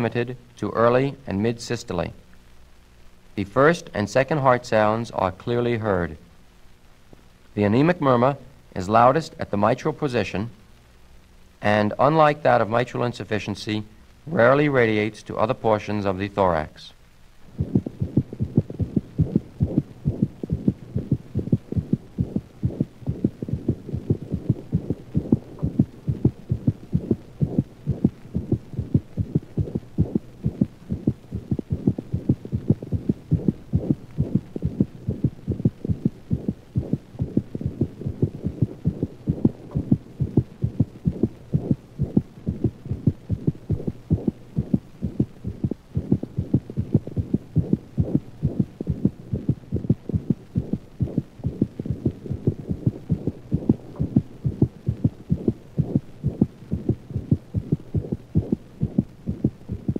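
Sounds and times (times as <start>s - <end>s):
fast heartbeat thuds: 17.5s - 59.9s.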